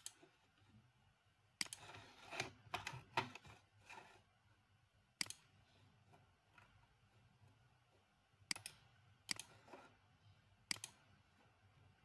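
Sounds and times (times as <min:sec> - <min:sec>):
mouse and keyboard clicks: 0:01.6 - 0:03.4, 0:05.2 - 0:05.5, 0:08.5 - 0:09.7, 0:10.7 - 0:11.1.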